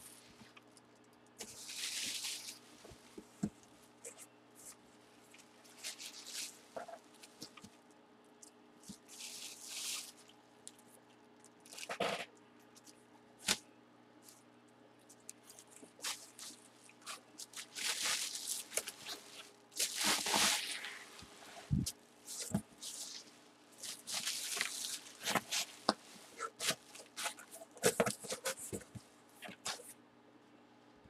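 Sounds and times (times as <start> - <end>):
plastic packaging crinkling: 1.4 - 2.7, 5.3 - 7.7, 8.9 - 10.3, 15.3 - 28.8.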